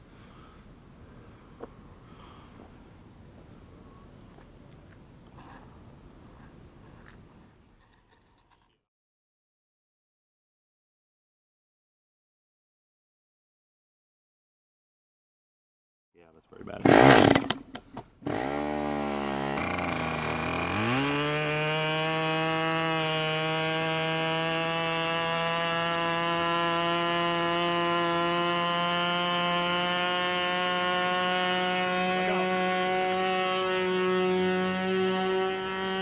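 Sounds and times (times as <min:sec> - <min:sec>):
electric starter: 0:16.8 - 0:36.0
model airplane engine running: 0:18.7 - 0:36.0.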